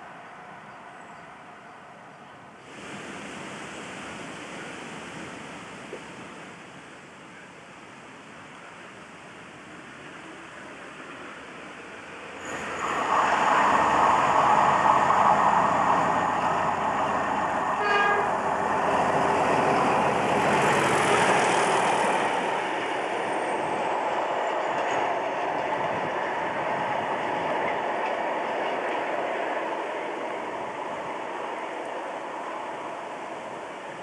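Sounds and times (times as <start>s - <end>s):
diesel locomotive engine: 0.0s - 34.0s
train horn toot: 17.8s - 18.4s.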